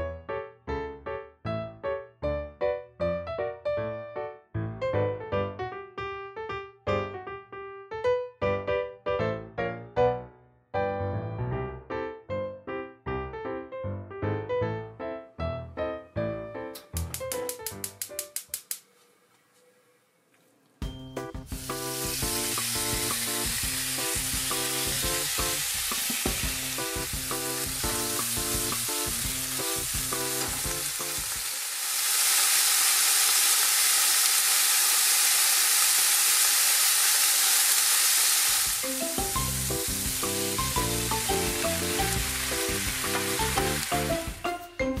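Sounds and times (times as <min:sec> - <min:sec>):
music with steady beat: 0:16.7 - 0:18.6, 0:20.8 - 0:31.2, 0:38.8 - 0:45.0
pork sizzling in frying pan: 0:20.8 - 0:44.7.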